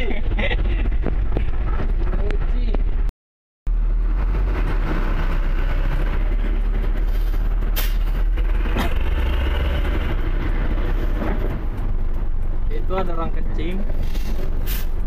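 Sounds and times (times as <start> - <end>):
diesel truck engines rumbling: 3.7 - 15.0.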